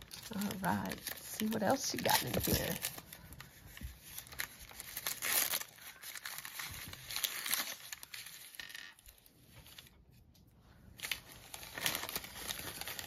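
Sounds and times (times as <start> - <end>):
packaging crinkling and rustling: 0.0 - 10.3, 10.9 - 13.0.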